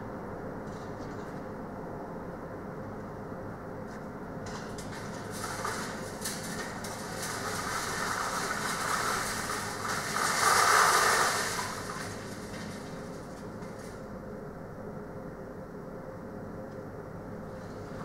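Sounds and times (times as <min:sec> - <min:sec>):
metal roll cages rattling: 0:04.5 - 0:13.9.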